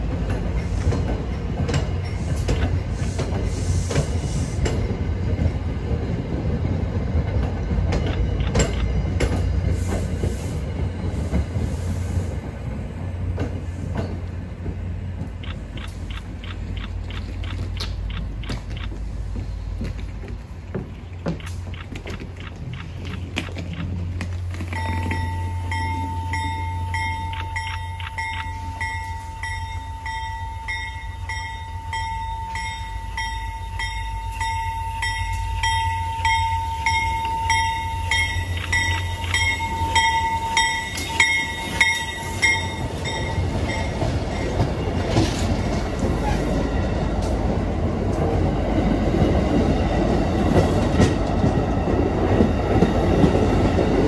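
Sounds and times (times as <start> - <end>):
train wheels rumbling on rails: 0.0 - 54.0
warning bell dinging: 24.7 - 44.8.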